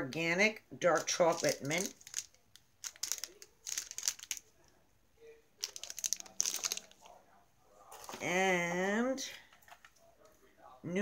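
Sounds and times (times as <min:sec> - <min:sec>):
packaging crinkling: 0:00.9 - 0:04.6, 0:05.6 - 0:07.1.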